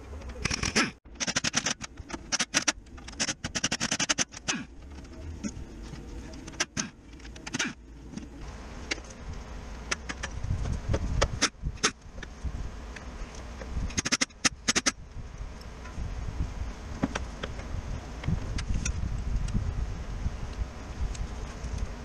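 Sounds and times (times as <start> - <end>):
pneumatic impact wrench hammering: 0.4 - 4.7, 6.4 - 7.8, 11.2 - 12.0, 13.9 - 15.0.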